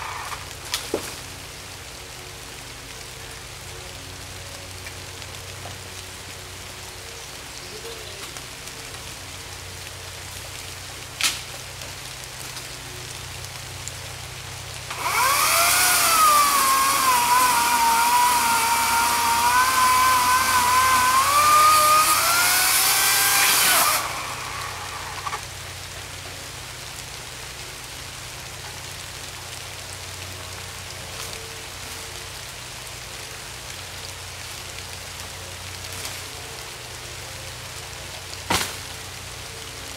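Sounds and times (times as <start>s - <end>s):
electric chainsaw cutting log: 0.0s - 1.2s, 14.8s - 25.6s
steady rain hiss: 0.0s - 39.9s.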